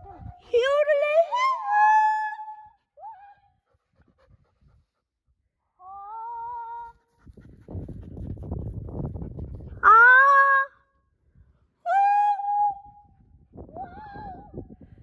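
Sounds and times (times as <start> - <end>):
dog panting and sniffing: 3.6 - 5.4, 7.0 - 9.8.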